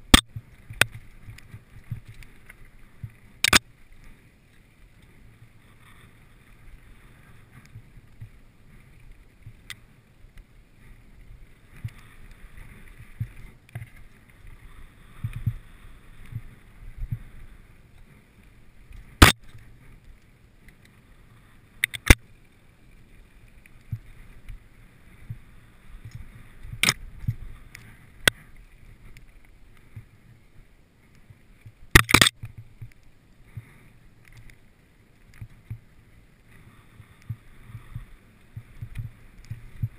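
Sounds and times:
bike tyres rumbling on dirt: 35.4 - 39.9.

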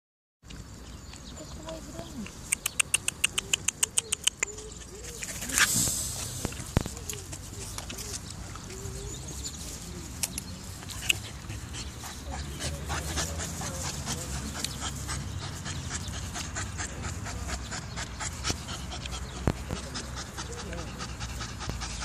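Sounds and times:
puppy panting: 1.4 - 22.0.

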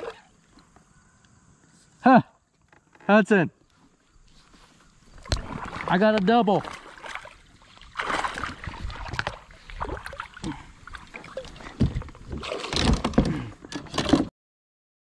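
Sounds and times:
water sloshing against hull: 3.9 - 14.3.

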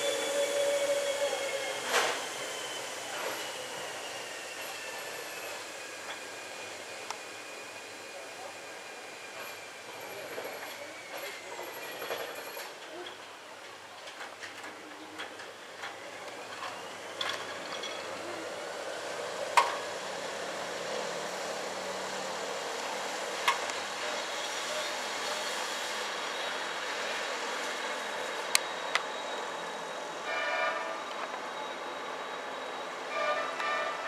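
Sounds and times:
electric train running: 0.0 - 12.9, 14.2 - 34.0.

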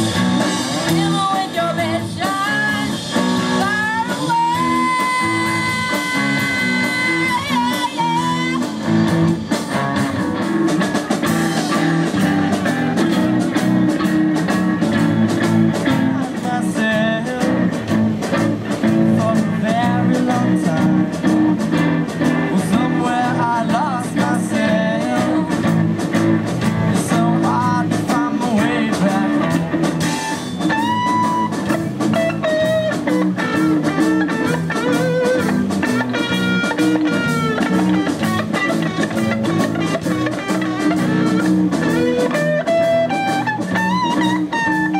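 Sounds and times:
electric guitar lead notes: 0.0 - 44.9
rock band playing: 0.0 - 44.9
boy singing: 0.8 - 8.7, 22.5 - 25.6, 27.0 - 29.6.

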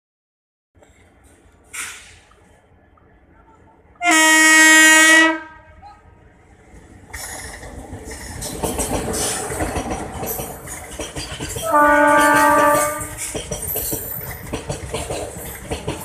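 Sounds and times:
freight train passing: 0.8 - 16.0
locomotive horn blast: 4.0 - 5.8, 11.6 - 13.2
wagons rattling over rails: 7.1 - 16.0.

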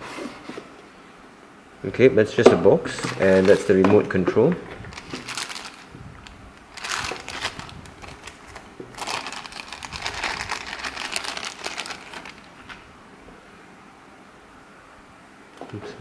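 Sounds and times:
plastic bag crinkling: 2.9 - 12.8.

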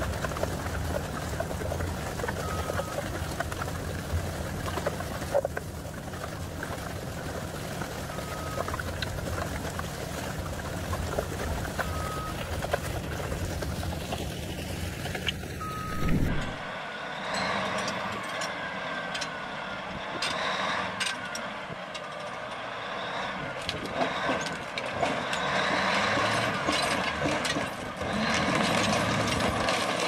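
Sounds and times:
excavator engine rumbling: 0.0 - 30.0
short high beeps: 15.6 - 16.7.

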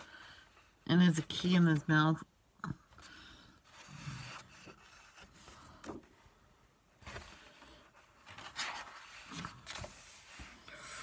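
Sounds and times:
paper pages rustling: 7.0 - 10.7.

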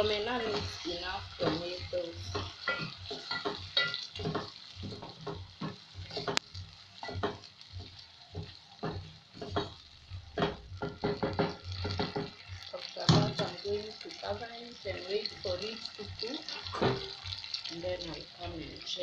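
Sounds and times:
wooden spoon scraping metal pot: 0.0 - 13.6
oil sizzling: 0.0 - 19.0.

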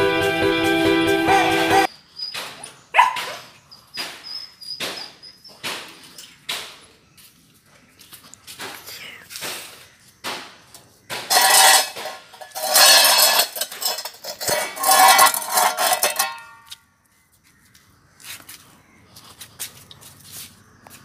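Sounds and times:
metallic ring: 11.3 - 16.7
metal bowl scraping on concrete: 11.3 - 16.8.

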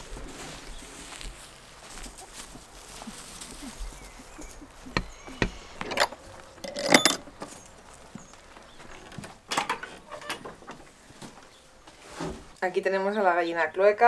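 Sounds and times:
sharp knocks and clinks: 4.9 - 7.5.

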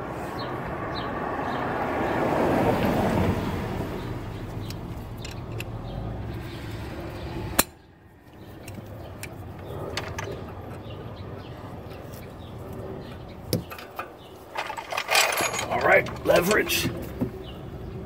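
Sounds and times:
hand tools handled on metal: 13.5 - 17.1.

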